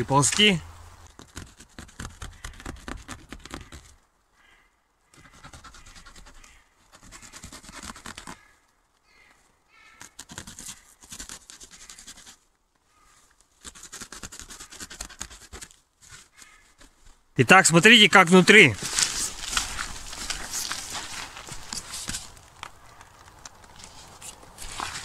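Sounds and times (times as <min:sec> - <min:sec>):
cling film crackling and rustling: 0:18.3 - 0:25.0.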